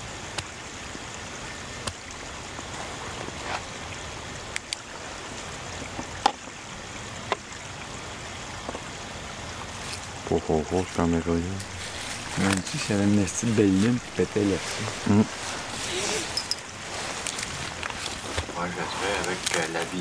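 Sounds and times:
stream water trickling: 0.0s - 20.0s.

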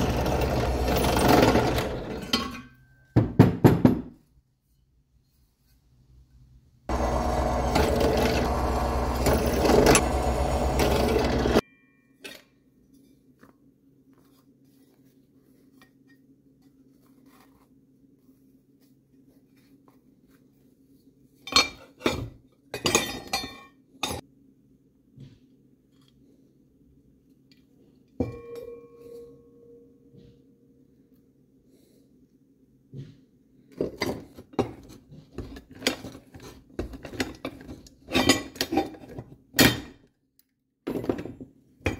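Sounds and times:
drill press drilling steel: 0.0s - 2.3s, 6.9s - 11.6s.

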